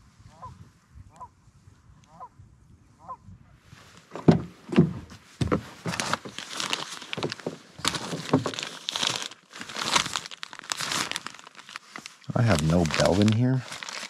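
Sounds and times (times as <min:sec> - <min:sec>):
plastic bags crinkling: 0:05.7 - 0:14.0.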